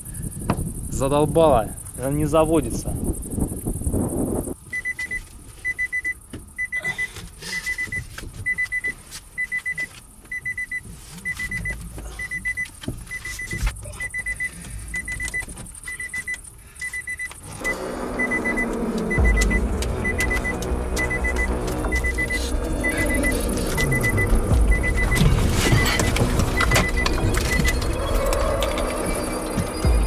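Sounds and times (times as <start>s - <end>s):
car warning chime beeps: 4.7s - 30.0s
car starter cranking engine: 14.0s - 30.0s.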